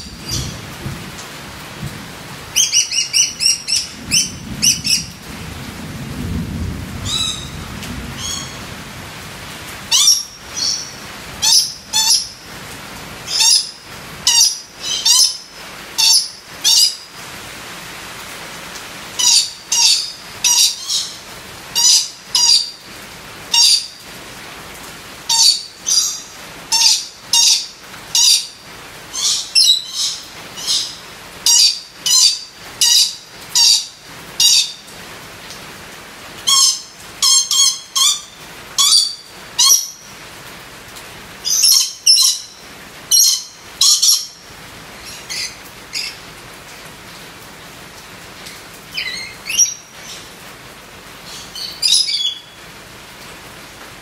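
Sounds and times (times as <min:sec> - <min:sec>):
parrot high-pitched calls: 0:00.0 - 0:00.7, 0:02.5 - 0:05.2, 0:07.0 - 0:07.6, 0:08.2 - 0:08.7, 0:09.9 - 0:12.4, 0:13.2 - 0:17.1, 0:19.1 - 0:22.9, 0:23.5 - 0:24.0, 0:25.2 - 0:34.9, 0:36.4 - 0:40.1, 0:41.4 - 0:44.4, 0:45.0 - 0:46.2, 0:48.5 - 0:50.4, 0:51.2 - 0:52.6
rain hiss: 0:00.0 - 0:54.0.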